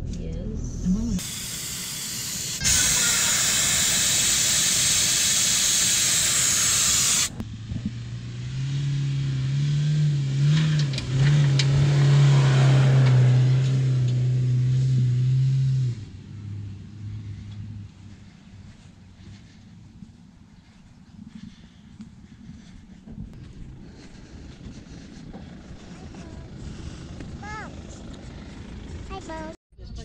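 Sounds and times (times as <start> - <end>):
vehicle engine running: 0.0 - 30.0
loud rushing hiss: 1.2 - 7.4.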